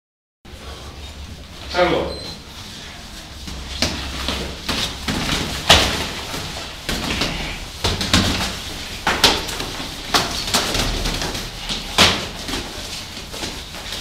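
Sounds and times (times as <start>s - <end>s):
punches and kicks on pads: 3.7s - 14.0s.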